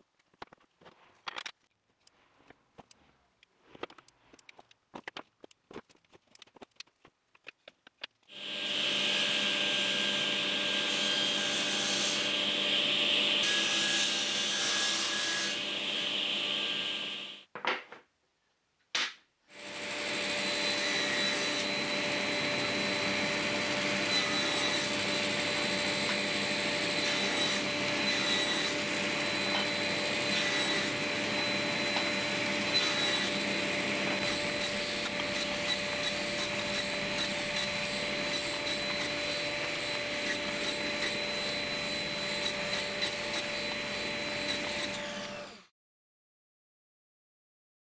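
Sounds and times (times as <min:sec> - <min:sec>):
table saw whining: 0:08.3 - 0:17.4, 0:19.5 - 0:45.7.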